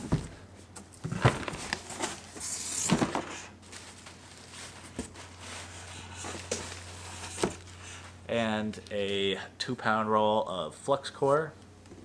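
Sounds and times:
cardboard knocks and bumps: 0:00.0 - 0:00.4
low steady hum: 0:00.0 - 0:12.0
packing material rustling: 0:01.1 - 0:08.2.

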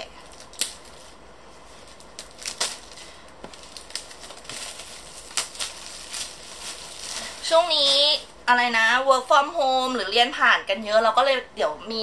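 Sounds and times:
plastic wrap crinkling: 0:00.2 - 0:08.4.

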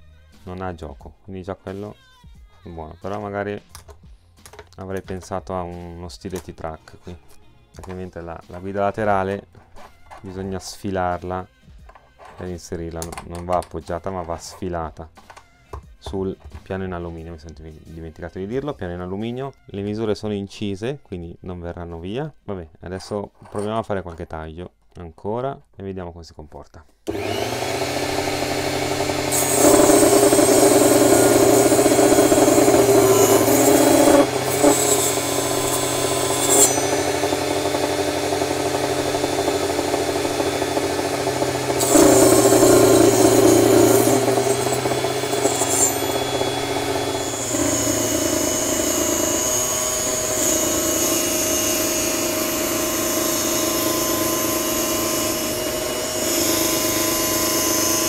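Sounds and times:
table saw cutting wood: 0:27.1 - 0:58.0.

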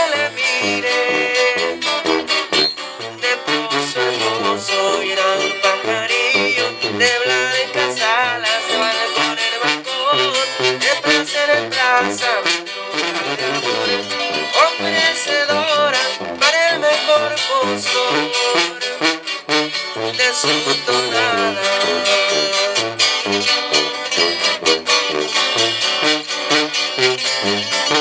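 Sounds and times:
acoustic guitars strumming: 0:00.0 - 0:28.0
tuba bass line: 0:00.0 - 0:28.0.

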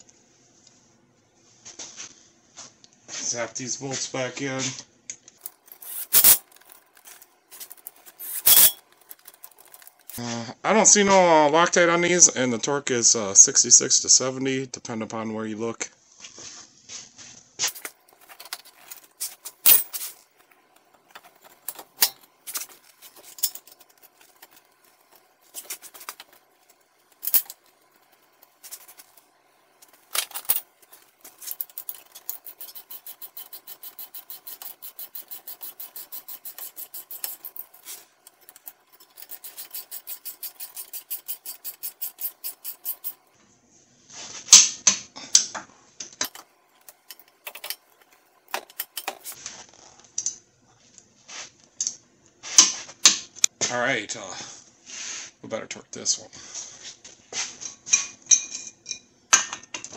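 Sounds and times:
ratchet wrench clicking: 0:05.4 - 0:06.8, 0:07.6 - 0:10.2, 0:29.9 - 0:43.2
metal clattering: 0:05.4 - 0:10.2, 0:17.7 - 0:29.2, 0:29.8 - 0:43.2, 0:46.2 - 0:49.4
metallic clinks: 0:05.4 - 0:10.2, 0:18.2 - 0:20.1, 0:21.1 - 0:29.2, 0:29.8 - 0:43.2, 0:46.2 - 0:49.4.

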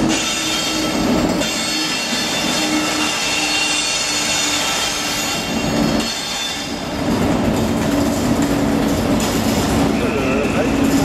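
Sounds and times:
high wheel squeal: 0:00.0 - 0:07.0
train wheels rumbling on rail: 0:00.0 - 0:11.0.

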